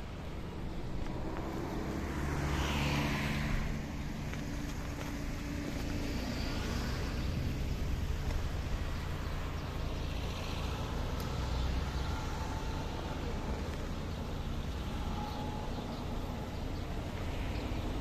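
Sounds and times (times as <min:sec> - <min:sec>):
car passing: 0:00.0 - 0:18.0
vehicle engine humming: 0:00.0 - 0:18.0.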